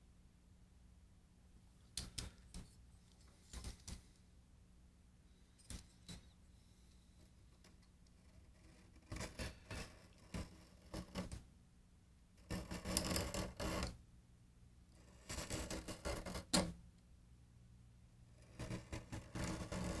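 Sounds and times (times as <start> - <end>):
knife scraping glue: 7.6 - 11.4, 12.5 - 14.0, 18.4 - 20.0.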